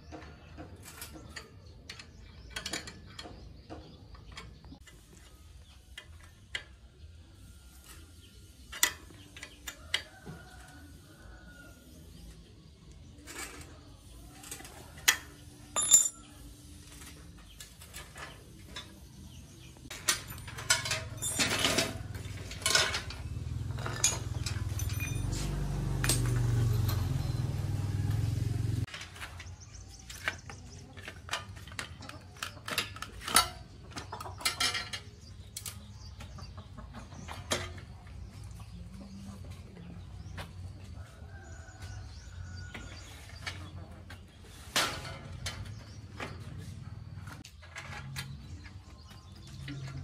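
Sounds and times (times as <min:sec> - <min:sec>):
metal parts clanking on concrete: 0:00.0 - 0:05.1, 0:13.1 - 0:27.8, 0:28.8 - 0:38.0, 0:42.2 - 0:50.0.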